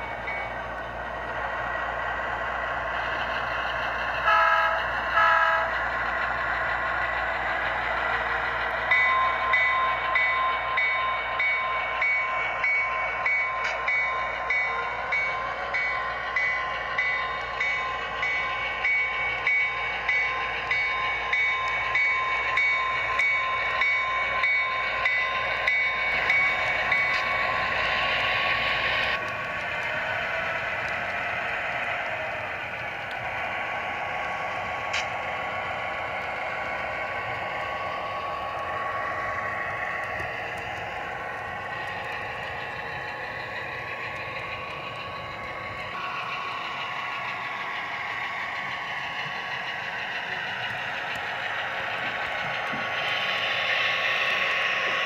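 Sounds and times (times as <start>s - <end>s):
locomotive bell ringing: 0.0s - 0.7s, 8.2s - 29.2s
model train drone and whine: 0.0s - 55.0s.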